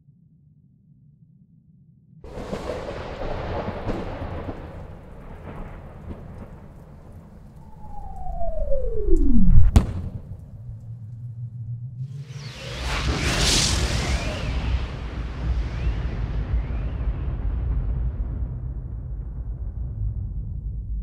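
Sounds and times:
dense rumble: 2.3s - 21.0s
falling whistle: 7.6s - 10.1s
heavy boom: 7.6s - 11.1s
low hum: 7.6s - 13.8s.

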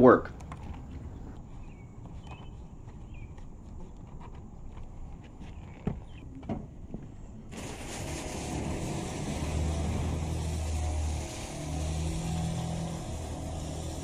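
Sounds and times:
pressure washer engine humming: 0.0s - 1.4s, 7.6s - 14.0s
water jet hissing onto asphalt: 7.5s - 14.0s.

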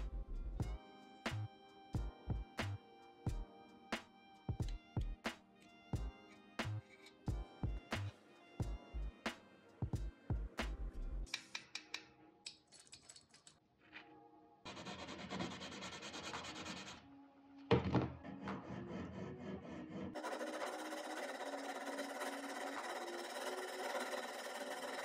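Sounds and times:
sanding sponge rubbing: 14.7s - 17.0s, 20.2s - 25.0s
metal tool scraping filler: 20.2s - 25.0s
scraping on metal: 20.2s - 25.0s.

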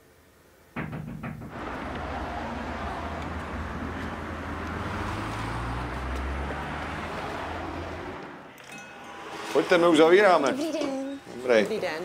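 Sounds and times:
low engine rumble: 0.8s - 8.5s
passing cars hum: 0.9s - 10.4s.

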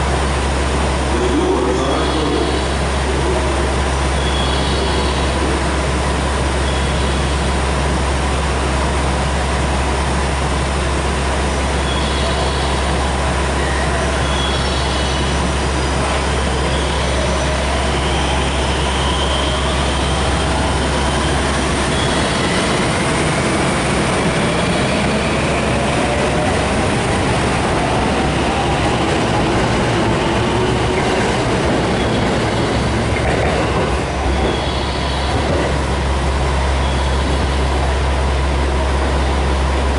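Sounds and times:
wheel-on-rail noise: 0.0s - 39.9s
electric train motors whining: 12.0s - 39.9s.

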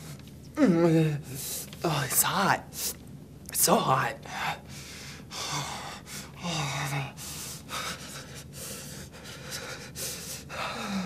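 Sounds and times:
man breathing heavily: 4.3s - 11.0s.

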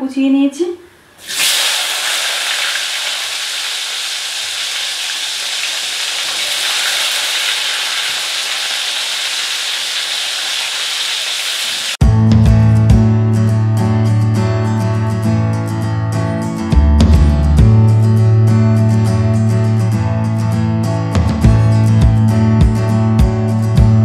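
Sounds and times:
onions sizzling in hot oil: 1.2s - 12.0s.

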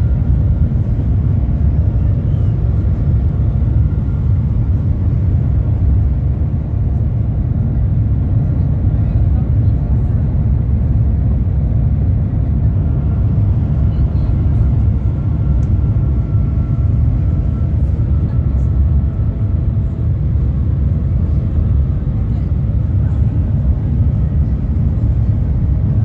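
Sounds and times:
train low rumble: 0.0s - 26.0s.

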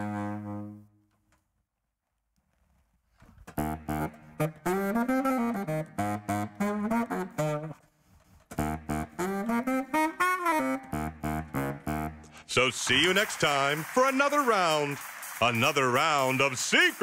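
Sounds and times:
baritone saxophone melody: 0.0s - 1.2s, 3.5s - 12.5s.

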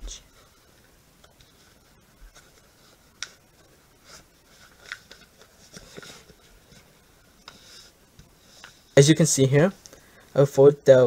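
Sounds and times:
paper rustling and crinkling: 1.2s - 9.0s.

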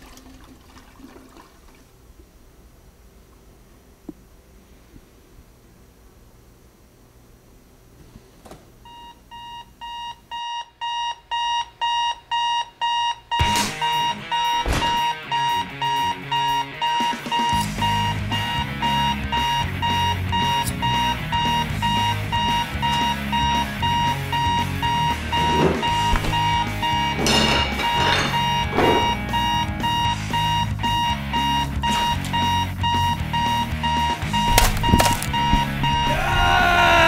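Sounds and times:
alarm clock beeping: 8.9s - 37.0s
low pulsing bass: 34.2s - 36.6s
sharp knocks: 34.5s - 36.4s.

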